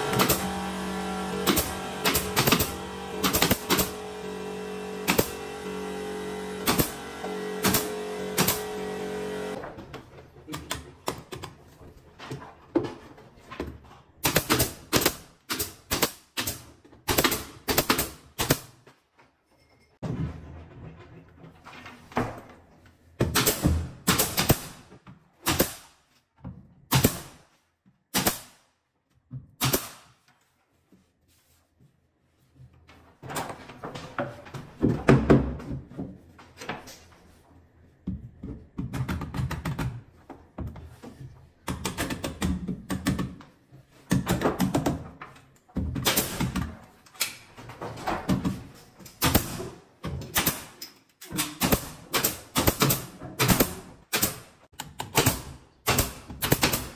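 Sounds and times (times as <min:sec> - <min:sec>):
nail gun firing: 0:00.0 - 0:09.6, 0:14.2 - 0:18.7, 0:23.3 - 0:24.8, 0:25.5 - 0:25.9, 0:26.9 - 0:27.4, 0:28.1 - 0:28.6, 0:29.6 - 0:30.1, 0:46.0 - 0:46.7, 0:49.2 - 0:50.8, 0:51.4 - 0:56.9
panels knocking and clattering: 0:19.4 - 0:24.1, 0:32.7 - 0:37.4, 0:38.0 - 0:50.4.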